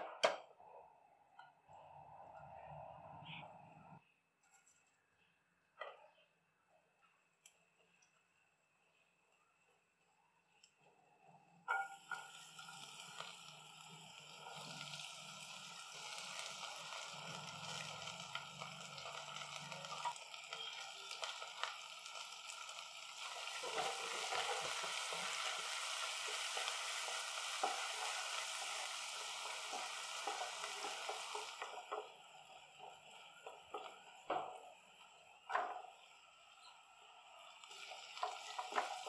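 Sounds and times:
food sizzling in oil: 11.7s - 39.0s.

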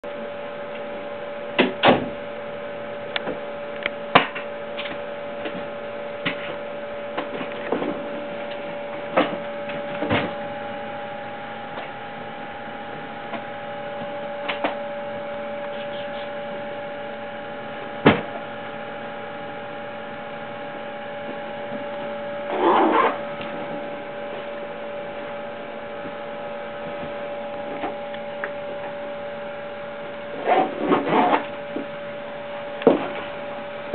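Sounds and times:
electrical hum: 0.0s - 33.9s.

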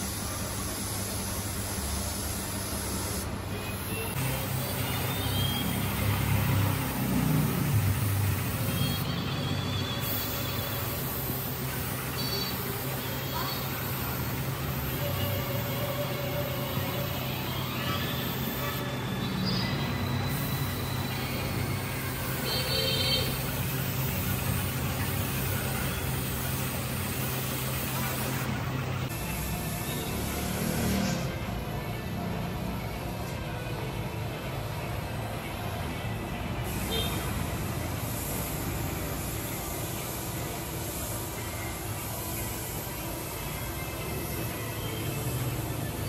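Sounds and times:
spray gun hissing: 0.0s - 19.6s, 20.3s - 29.6s, 36.7s - 43.4s
air compressor running: 0.0s - 31.1s, 36.6s - 46.0s.

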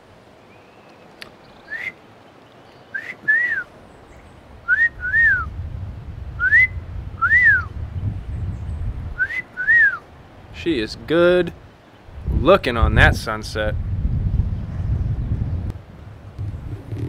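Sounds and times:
two-note whistled animal call: 1.7s - 2.0s, 2.9s - 3.7s, 4.7s - 5.5s, 6.4s - 7.7s, 9.2s - 10.0s
low rumble: 5.0s - 9.3s, 12.2s - 17.0s.

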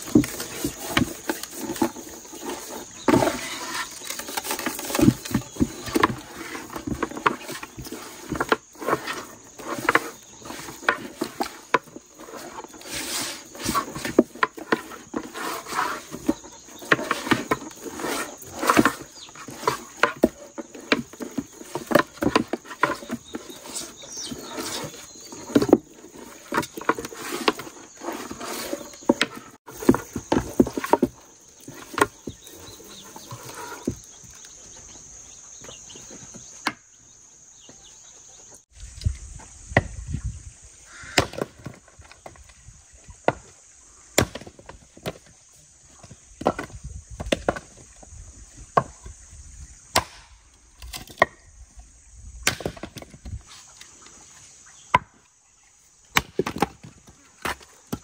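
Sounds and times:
hatchet splitting firewood: 0.0s - 34.1s, 41.1s - 41.8s, 44.2s - 45.3s, 49.9s - 51.4s, 52.4s - 53.4s, 56.1s - 58.0s.

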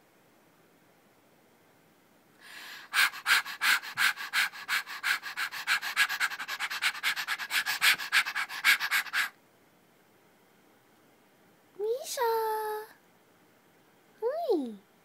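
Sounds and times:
person panting: 2.4s - 9.3s.

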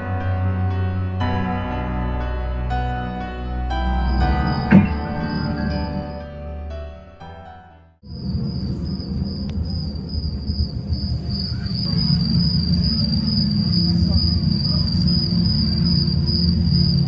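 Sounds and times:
low rumble: 2.8s - 6.8s
insects trilling: 8.1s - 17.0s.

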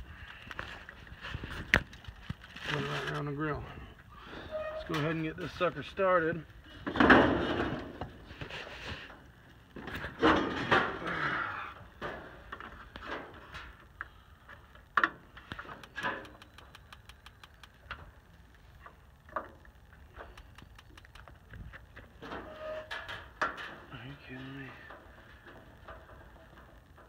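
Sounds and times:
clattering near grill: 6.8s - 9.2s, 9.8s - 11.3s, 22.0s - 24.1s.

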